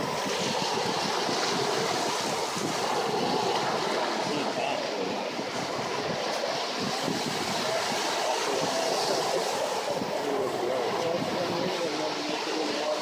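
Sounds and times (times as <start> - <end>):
ocean surf breaking on beach: 0.0 - 13.0.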